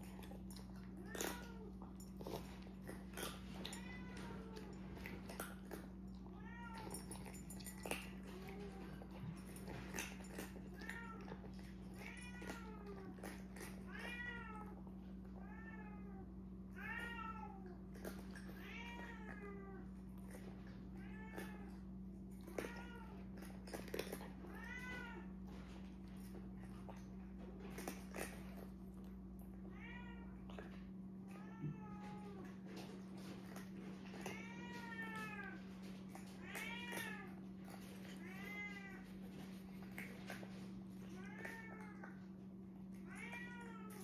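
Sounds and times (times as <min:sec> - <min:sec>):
cats eating from ceramic bowls: 0:00.0 - 0:44.0
cat meowing: 0:03.6 - 0:04.7, 0:31.3 - 0:32.5.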